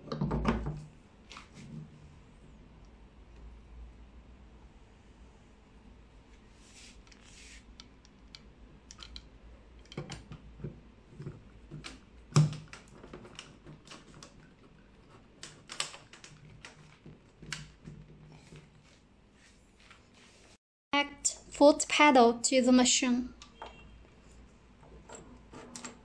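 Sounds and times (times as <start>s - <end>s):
plastic and metal clicks and knocks: 7.8s - 18.3s.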